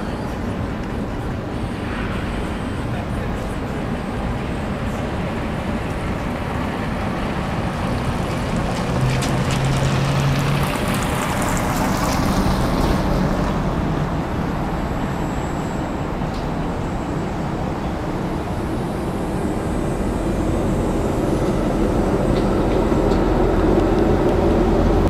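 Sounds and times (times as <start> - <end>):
city traffic rumble: 0.0 - 25.0
car passing close: 5.2 - 25.0.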